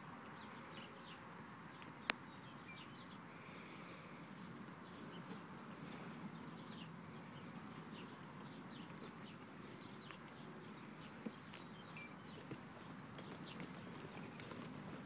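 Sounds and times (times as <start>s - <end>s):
outdoor background noise: 0.0s - 15.0s
bird chirps: 2.0s - 3.2s, 5.1s - 13.7s
hoofbeats on soft dirt: 4.4s - 15.0s.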